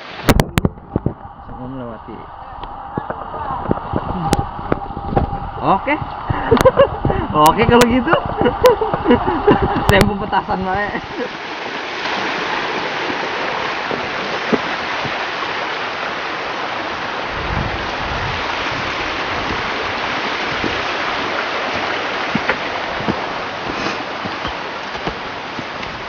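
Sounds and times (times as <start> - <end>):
stream water rushing: 0.0 - 26.0
footsteps on dirt path: 20.0 - 26.0.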